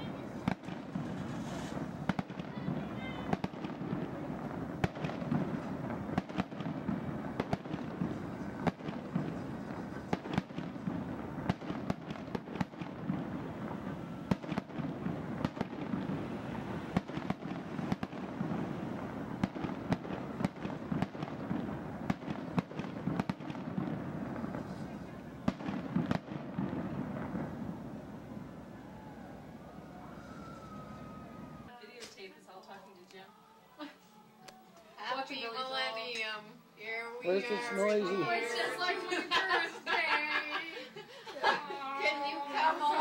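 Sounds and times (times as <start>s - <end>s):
fireworks bangs and pops: 0.0s - 29.1s.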